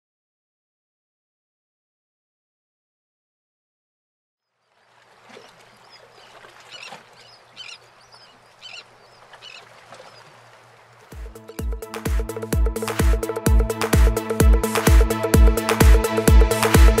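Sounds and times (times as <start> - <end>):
water washing: 4.7 - 11.7
bird short high calls: 5.2 - 10.7.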